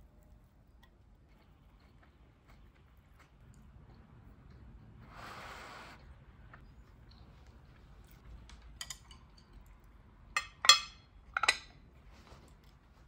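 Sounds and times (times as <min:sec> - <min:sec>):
ceramic bowl and plate clinking: 0:10.3 - 0:11.8.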